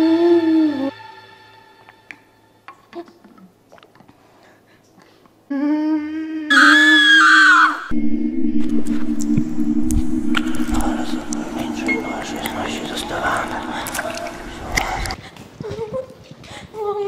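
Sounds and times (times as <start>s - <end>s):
howling cry turning into scream: 6.5s - 7.9s
low eerie drone: 7.8s - 15.2s.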